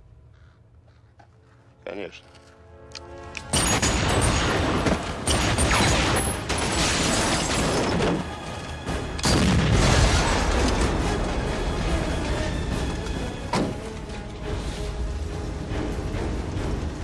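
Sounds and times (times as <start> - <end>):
action music score: 0.9 - 17.0
bullets striking stone and metal: 3.4 - 8.2
continuous gunfire: 3.5 - 8.3
booming explosions: 9.3 - 11.5.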